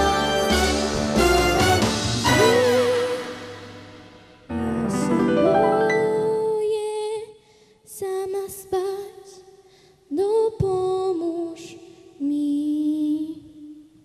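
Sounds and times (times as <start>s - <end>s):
woman singing unaccompanied: 4.6s - 7.3s, 7.9s - 9.4s, 10.1s - 13.7s.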